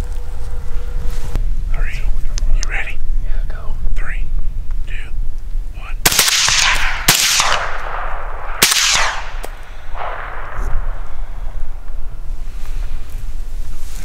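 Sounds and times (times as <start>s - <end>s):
suppressed rifle shots: 6.0s - 11.3s
gunshot echo: 6.0s - 11.7s.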